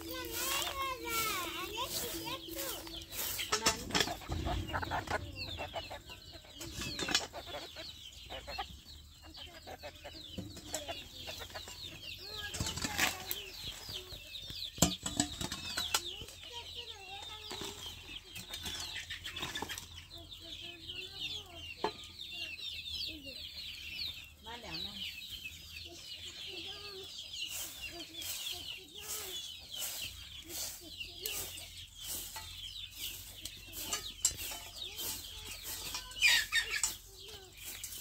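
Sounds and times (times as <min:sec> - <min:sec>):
hoe scraping and knocking ground: 0:00.0 - 0:07.6
birds chirping: 0:00.0 - 0:38.0
hens clucking: 0:00.0 - 0:38.0.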